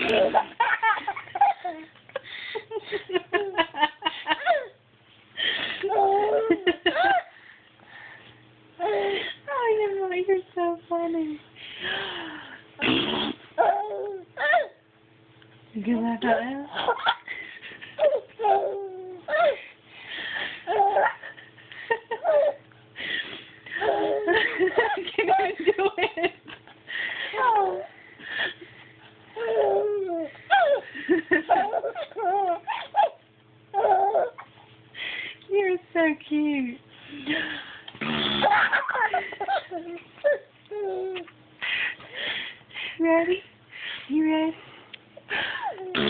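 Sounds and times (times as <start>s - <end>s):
baby giggling: 0.0s - 1.9s, 5.8s - 7.3s, 13.6s - 14.7s, 18.0s - 19.6s, 20.7s - 21.4s, 22.2s - 22.6s, 23.7s - 26.2s, 29.4s - 34.5s, 38.0s - 41.3s.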